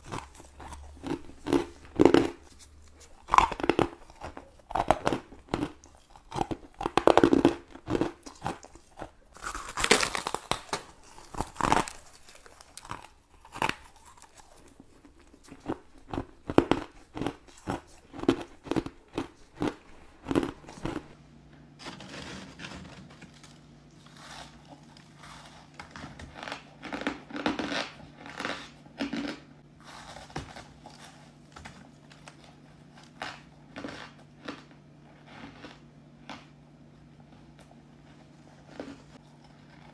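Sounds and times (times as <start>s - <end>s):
chewing crushed ice: 0.0s - 21.2s, 23.3s - 39.9s
low steady hum: 0.0s - 39.9s.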